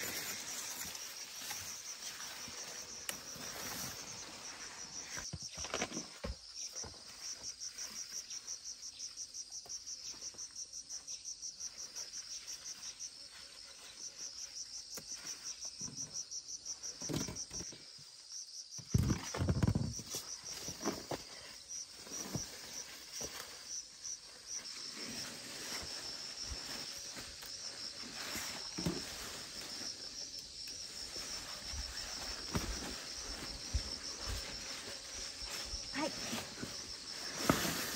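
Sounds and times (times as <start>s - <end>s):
leaves rustling: 0.0s - 5.2s, 20.3s - 37.9s
insects chirping: 0.0s - 37.9s.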